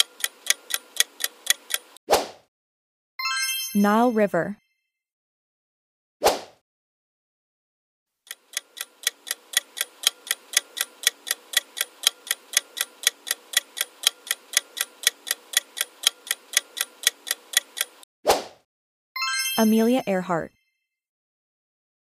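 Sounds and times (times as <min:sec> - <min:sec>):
clock ticking: 0:00.0 - 0:02.0, 0:08.3 - 0:18.1.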